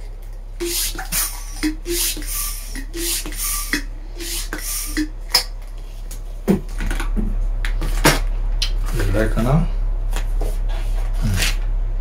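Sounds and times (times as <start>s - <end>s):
balloons squeaky rubbing: 0.6s - 5.1s.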